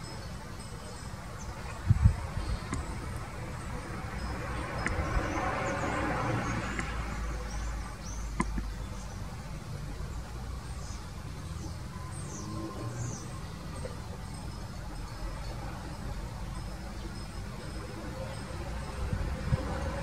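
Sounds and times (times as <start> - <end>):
vehicle passing: 2.9 - 8.4, 11.3 - 20.0.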